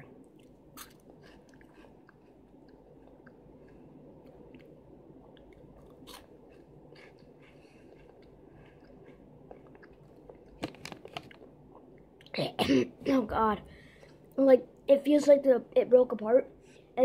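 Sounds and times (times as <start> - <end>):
chewing crunchy snack: 0.0 - 12.4.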